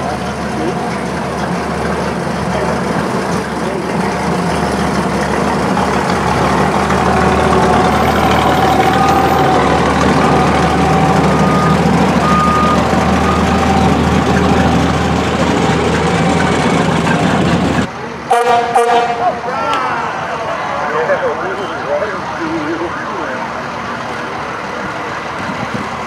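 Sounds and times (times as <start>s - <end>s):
heavy truck engine running: 0.0s - 26.0s
short high beeps: 11.3s - 13.7s.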